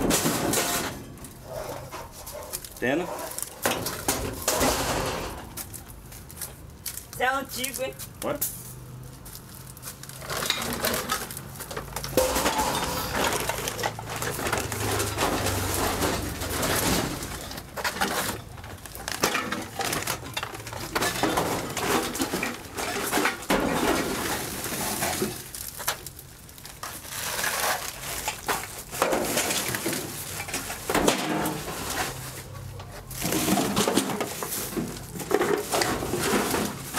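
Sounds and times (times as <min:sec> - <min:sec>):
scrap metal clattering and scraping: 0:00.0 - 0:07.0, 0:08.5 - 0:36.9.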